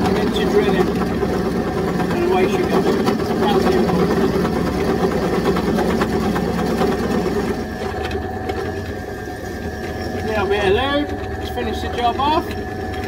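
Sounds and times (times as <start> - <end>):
drill motor running: 0.0 - 13.0.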